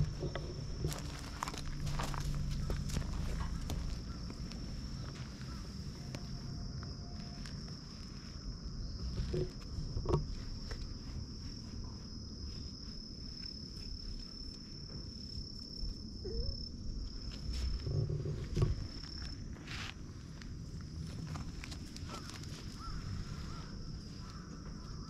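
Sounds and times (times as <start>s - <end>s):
low rumble: 0.0s - 14.4s
high-pitched insect trill: 0.0s - 25.0s.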